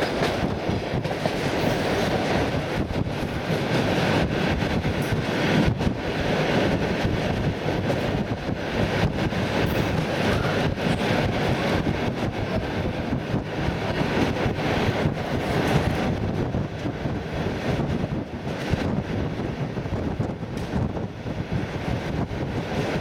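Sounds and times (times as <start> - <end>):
train wheels rumbling on rails: 0.0 - 23.0.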